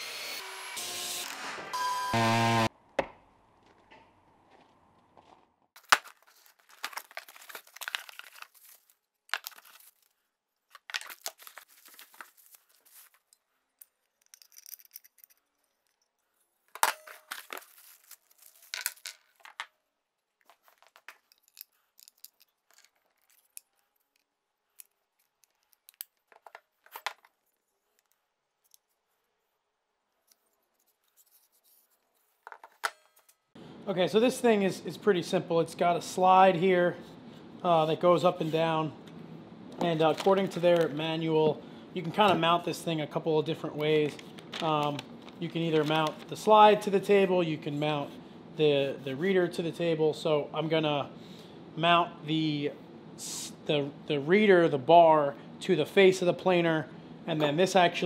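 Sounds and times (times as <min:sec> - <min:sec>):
plastic packaging crinkling: 0:05.8 - 0:13.3, 0:17.2 - 0:19.6, 0:39.8 - 0:41.2, 0:43.9 - 0:46.6.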